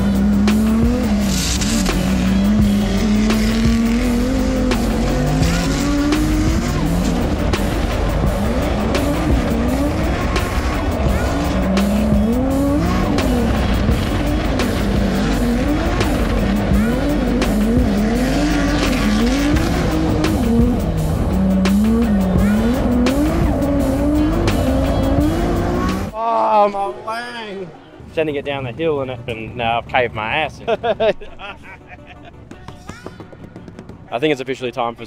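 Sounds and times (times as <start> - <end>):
car engine revving: 0.0 - 26.2.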